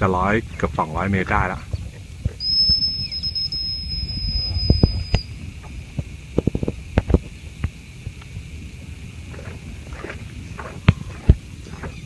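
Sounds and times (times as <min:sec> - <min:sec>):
wind on microphone: 0:00.0 - 0:12.0
high whistle-like tone: 0:02.4 - 0:05.4.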